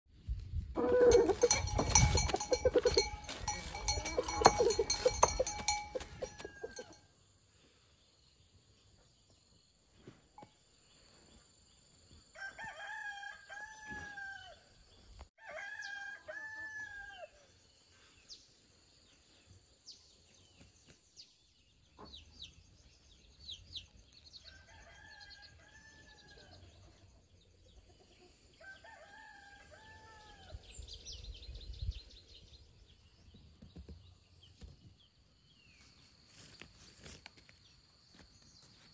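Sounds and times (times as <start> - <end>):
rooster crowing: 0.8 - 1.8, 3.8 - 7.0, 12.4 - 14.7, 15.4 - 17.4, 28.6 - 30.5.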